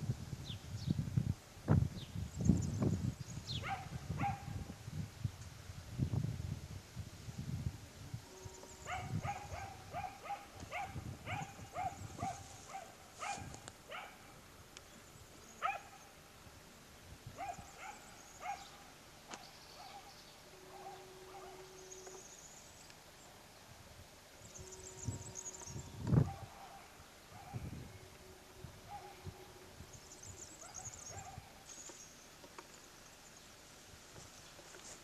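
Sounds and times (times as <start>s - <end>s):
dog barking: 3.6s - 4.6s, 8.9s - 14.3s, 15.6s - 16.1s, 17.4s - 18.8s, 19.8s - 20.1s, 20.7s - 21.7s, 26.2s - 27.7s, 28.9s - 29.3s, 30.6s - 31.6s.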